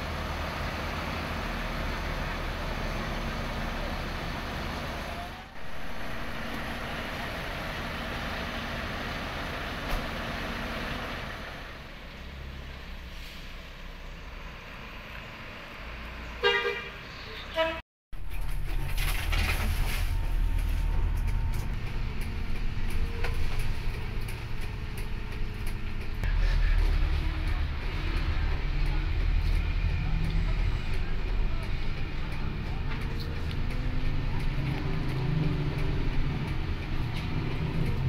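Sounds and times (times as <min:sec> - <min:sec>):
bus engine running: 0:00.0 - 0:38.0
bus horn tooting: 0:16.4 - 0:17.8.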